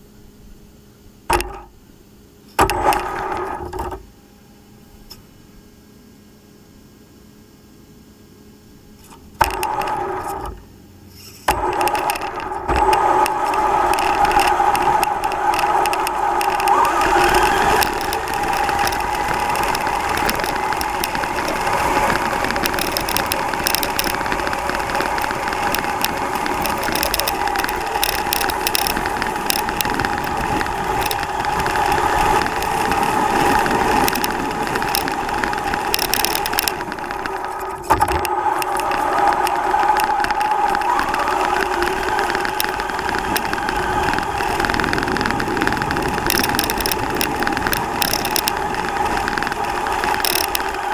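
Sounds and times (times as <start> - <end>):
toy truck motor and gear whine: 9.0 - 50.9
chassis rattles and knocks: 11.4 - 50.9.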